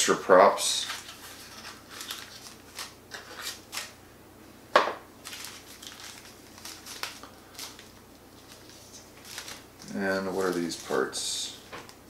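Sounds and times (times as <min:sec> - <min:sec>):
packet crinkling and clicking: 0:05.2 - 0:11.1.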